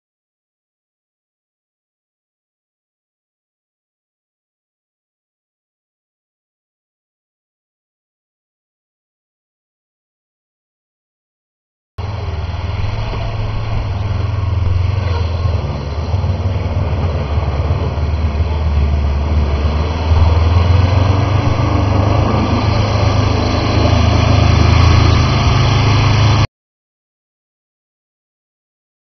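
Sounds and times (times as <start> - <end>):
off-road vehicle engine under load: 12.0 - 26.5.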